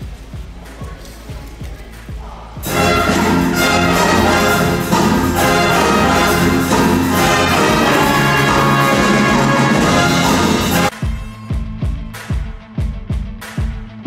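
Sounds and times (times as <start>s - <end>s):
brass instrumental music: 2.6s - 11.5s.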